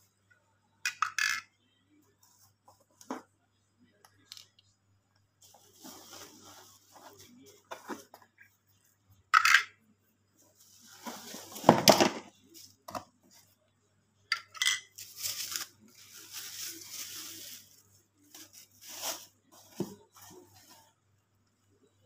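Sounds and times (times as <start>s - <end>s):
plastic and cardboard rustling: 5.4s - 8.4s, 10.5s - 13.4s, 15.0s - 20.9s.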